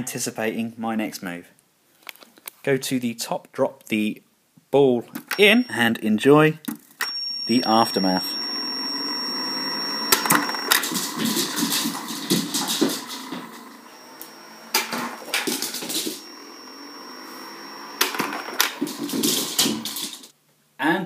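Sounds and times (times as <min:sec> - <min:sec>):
faint high steady whine: 0:07.0 - 0:20.4
knocks and clatter of balls: 0:10.2 - 0:13.6, 0:14.8 - 0:16.3, 0:18.0 - 0:20.3.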